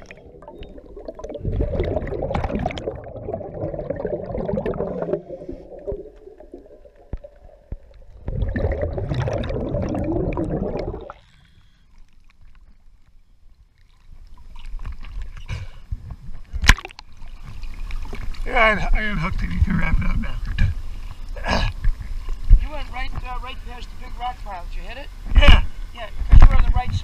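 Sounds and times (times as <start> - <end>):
underwater exhaust bubbling: 0.0 - 12.0, 17.9 - 22.6
water sloshing at microphone: 0.0 - 24.0.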